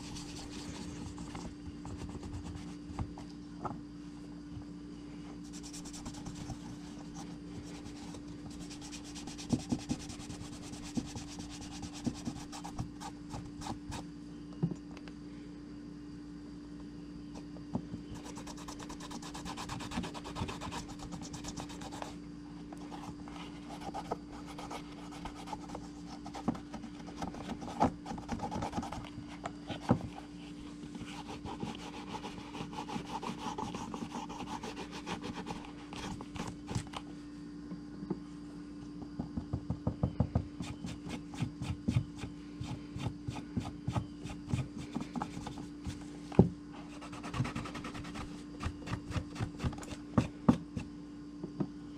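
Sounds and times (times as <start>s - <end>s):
hand rubbing leather: 0.0s - 3.1s, 5.5s - 14.0s, 31.0s - 36.8s.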